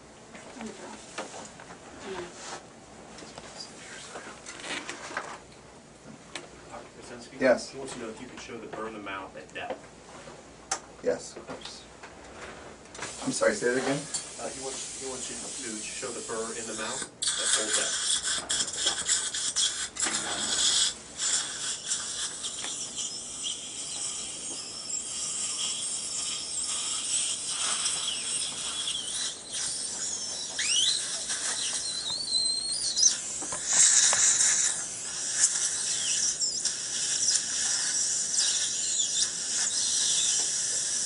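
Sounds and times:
dental suction and water spray hissing: 13.0s - 41.0s.

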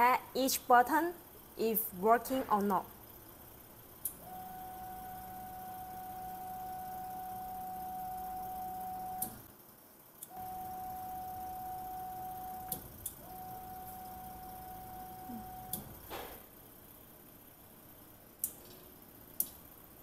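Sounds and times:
printer motor whining: 10.3s - 16.3s.

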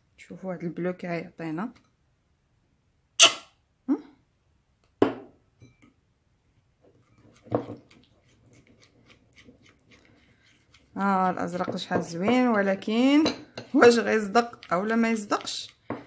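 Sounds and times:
paint being stirred ticks: 6.8s - 13.1s, 13.7s - 15.9s.

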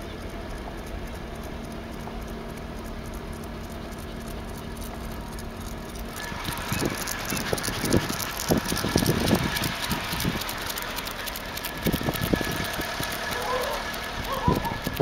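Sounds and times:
car engine and road noise: 0.0s - 15.0s
steady hum: 0.0s - 15.0s
tyres pattering on road: 0.0s - 15.0s.

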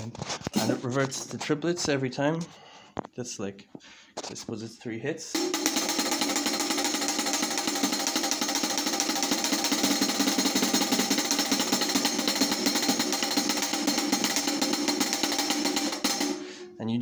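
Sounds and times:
drumstick on closed hi-hat: 0.5s - 1.0s, 5.3s - 16.8s.

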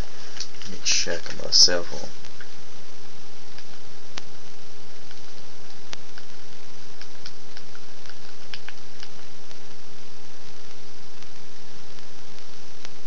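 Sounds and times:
steady background hiss: 0.0s - 13.0s.

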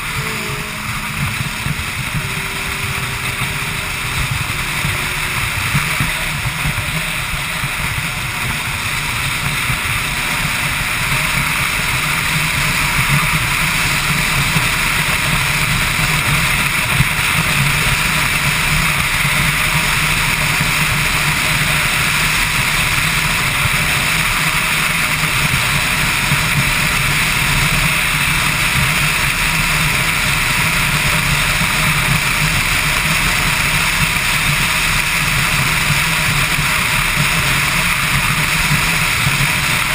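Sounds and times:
motorcycle engine drone: 0.0s - 39.9s.

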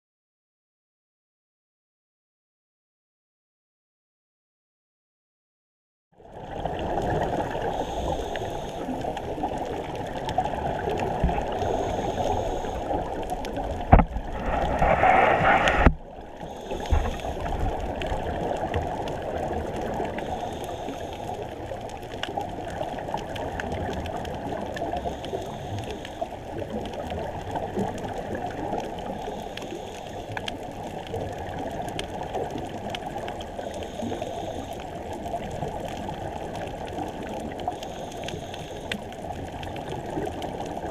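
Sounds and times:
faint hiss: 7.4s - 9.9s, 10.9s - 18.4s, 19.9s - 21.8s, 33.5s - 35.4s
diver regulator breathing: 7.4s - 19.2s, 19.9s - 21.8s, 24.7s - 26.6s, 28.3s - 30.8s, 33.5s - 35.9s, 37.6s - 39.4s
gurgling rush: 9.3s - 21.2s.

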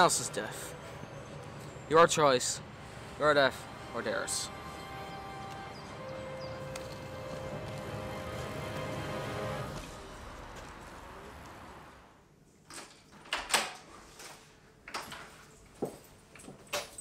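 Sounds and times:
music: 0.0s - 10.9s.

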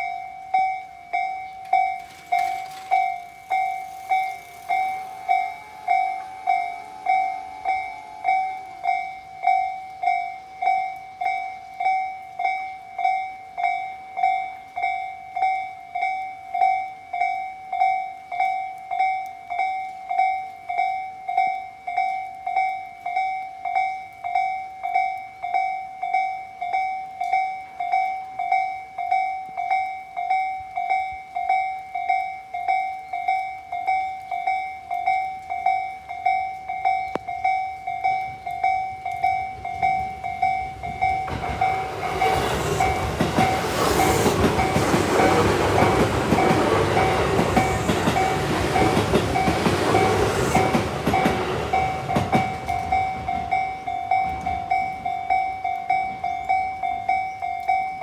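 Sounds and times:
train running with wheel clatter: 0.0s - 12.5s, 30.2s - 58.0s
level crossing warning bell: 0.0s - 58.0s.

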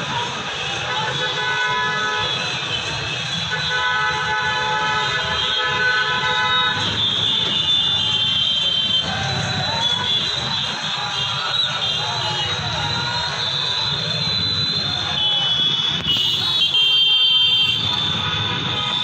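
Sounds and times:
street traffic noise: 0.0s - 19.0s
vehicle horns honking: 0.6s - 19.0s.

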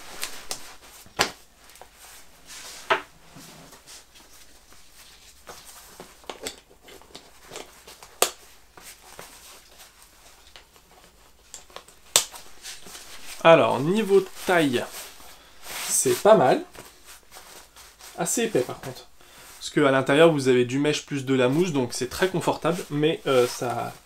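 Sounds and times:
fabric and webbing rustling: 0.0s - 24.0s.

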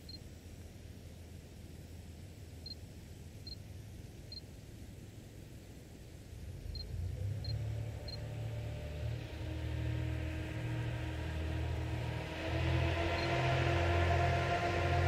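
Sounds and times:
diesel locomotive engine rumbling: 6.4s - 15.0s.

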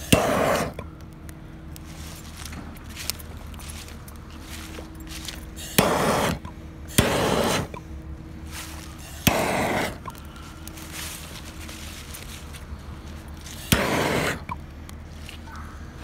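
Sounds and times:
propane torch hissing: 0.0s - 0.8s, 5.6s - 7.8s, 8.7s - 10.2s, 13.4s - 14.6s
torch ignition click: 0.0s - 1.8s, 5.6s - 7.8s, 9.1s - 10.8s, 13.6s - 14.7s.

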